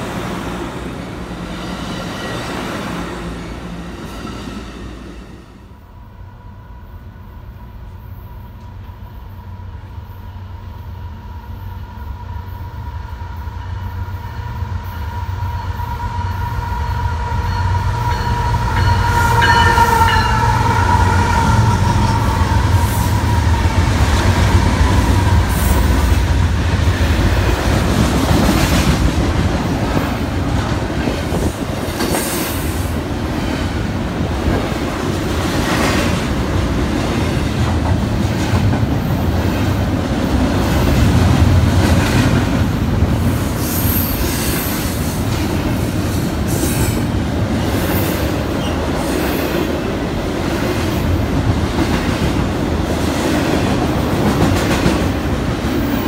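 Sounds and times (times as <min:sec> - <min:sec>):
diesel locomotives passing: 0:00.0 - 0:56.0
steady high tone: 0:15.0 - 0:26.1
freight train wheels clacking: 0:15.4 - 0:56.0.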